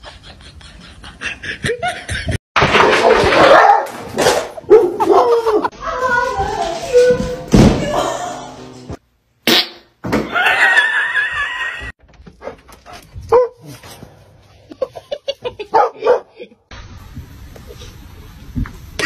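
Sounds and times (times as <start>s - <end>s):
dog barking and yipping: 3.4s - 4.0s, 12.4s - 13.8s, 15.7s - 16.4s.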